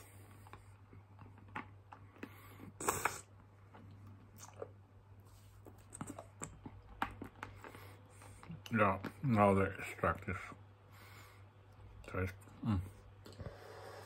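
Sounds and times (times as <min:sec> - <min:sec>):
wet mouth clicks and sucking: 0:02.8 - 0:03.3, 0:04.3 - 0:04.7.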